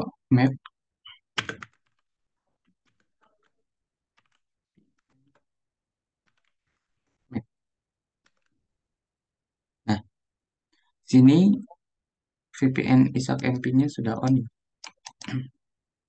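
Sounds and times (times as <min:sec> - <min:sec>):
keyboard typing: 0:01.1 - 0:05.5, 0:06.2 - 0:06.8.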